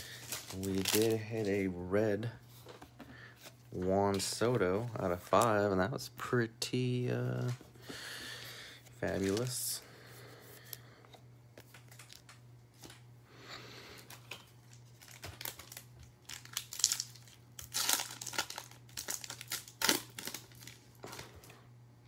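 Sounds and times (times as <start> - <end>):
foil wrapper crinkling: 0.0 - 1.8, 9.0 - 9.8, 11.6 - 13.0, 14.0 - 21.6.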